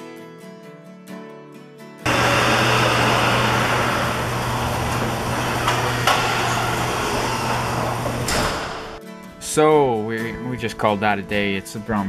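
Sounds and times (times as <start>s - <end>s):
door clanks: 2.1s - 9.0s
door opener motor hum: 2.1s - 9.0s
shop door clattering: 2.1s - 9.0s.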